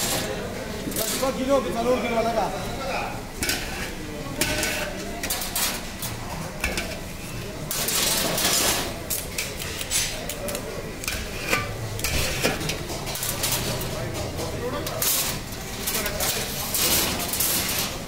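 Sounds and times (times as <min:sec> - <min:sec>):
metal skewers scraping a pot: 0:03.3 - 0:14.0, 0:14.8 - 0:18.0.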